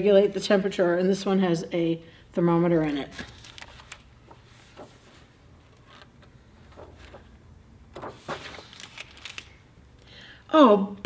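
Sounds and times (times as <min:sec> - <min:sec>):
low room hum: 0:00.0 - 0:11.0
book pages rustling: 0:03.0 - 0:09.6.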